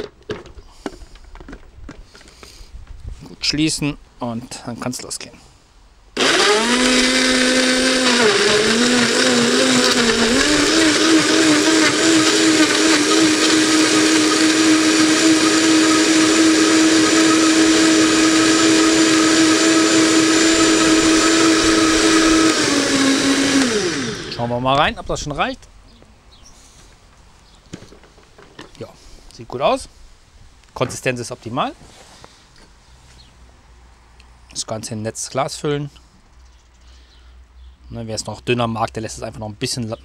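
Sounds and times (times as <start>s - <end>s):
blender motor whining: 6.2s - 24.6s.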